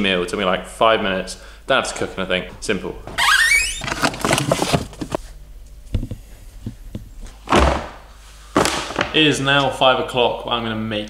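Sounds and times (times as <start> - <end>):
refrigerator door opening: 3.1 - 5.1
heavy bag thump on worktop: 7.5 - 8.0, 8.6 - 9.1.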